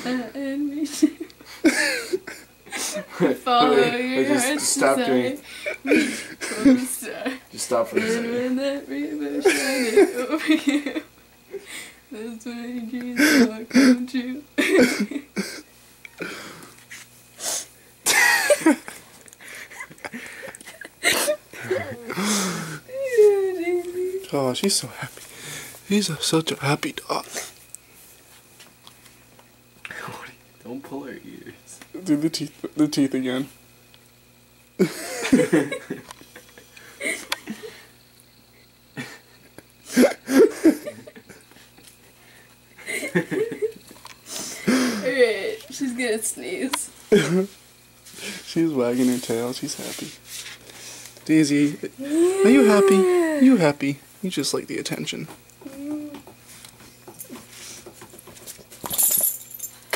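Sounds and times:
people laughing: 0.0 - 3.5, 5.4 - 8.4, 9.3 - 11.6, 14.6 - 15.6, 18.1 - 22.6, 34.8 - 37.8, 39.0 - 41.6, 42.8 - 43.8.

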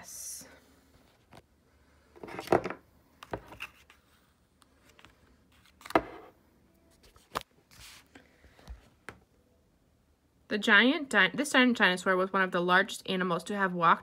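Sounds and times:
paper rustling: 6.9 - 8.2.

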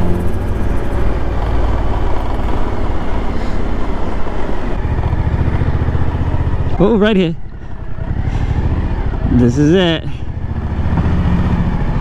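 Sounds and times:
rushing wind: 0.0 - 6.6
motorcycle engine rumble: 0.0 - 12.0
road noise: 0.0 - 12.0.

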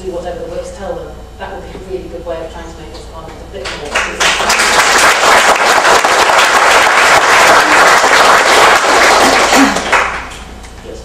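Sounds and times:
audience applauding: 4.0 - 10.4.

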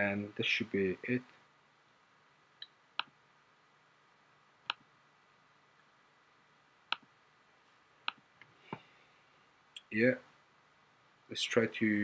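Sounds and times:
mouse buttons clicking: 2.6 - 3.2, 4.7 - 4.9, 6.9 - 7.1, 8.0 - 8.2.

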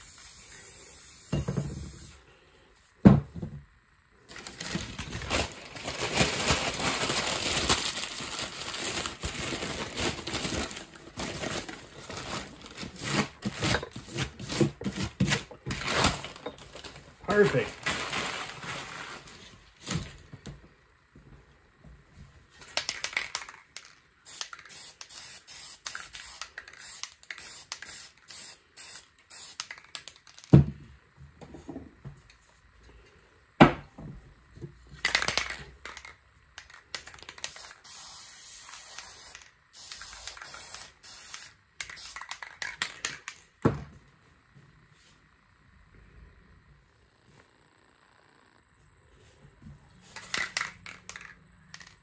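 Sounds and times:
spray paint can hissing: 0.0 - 2.2, 22.8 - 30.5, 36.6 - 43.4.

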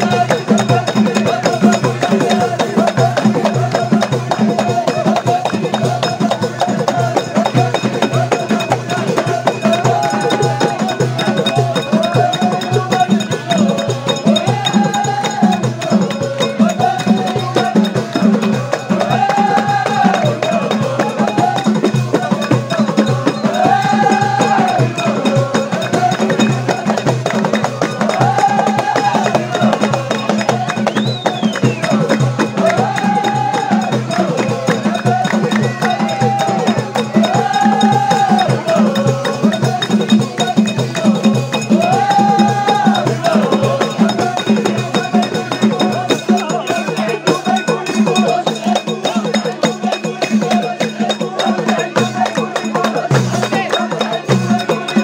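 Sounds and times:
percussion beat: 0.0 - 55.0
hand claps: 25.6 - 38.6.

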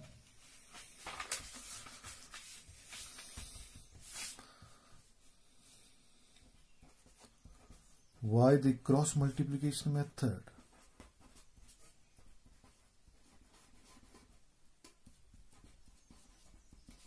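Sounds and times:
paper rustling and sliding: 0.2 - 4.4.

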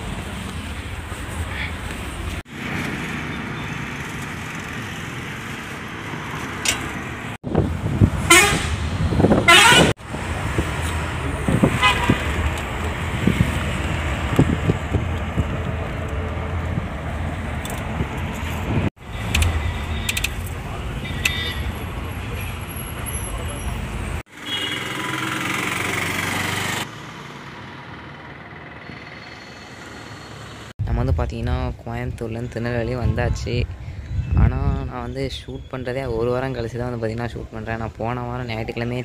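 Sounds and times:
bus engine and road noise: 0.0 - 39.0
rising horn: 8.2 - 9.9.

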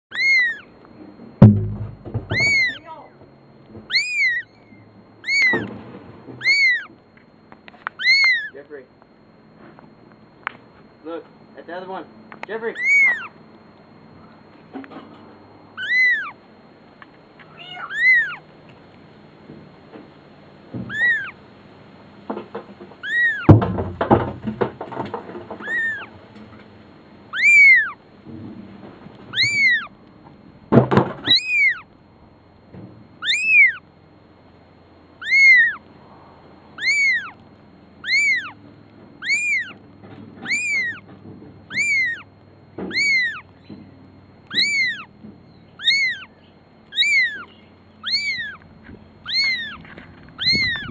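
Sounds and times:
kitten meowing: 0.1 - 0.7, 2.3 - 3.1, 3.9 - 5.7, 6.4 - 6.9, 8.0 - 8.6, 12.7 - 13.4, 15.8 - 16.4, 17.5 - 18.4, 20.9 - 21.4, 23.0 - 23.5, 25.6 - 26.1, 27.3 - 28.0, 29.3 - 29.9, 31.2 - 31.8, 33.2 - 33.8, 35.2 - 35.9, 36.8 - 37.4, 38.0 - 38.6, 39.2 - 39.8, 40.4 - 41.1, 41.7 - 42.3, 42.9 - 43.5, 44.5 - 45.1, 45.8 - 46.3, 46.9 - 48.6, 49.2 - 50.9
loud thumps: 1.4 - 2.8, 23.5 - 25.6.

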